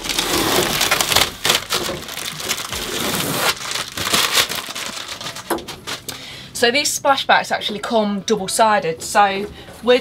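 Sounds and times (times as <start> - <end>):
plastic wrap crinkling: 0.0 - 6.2.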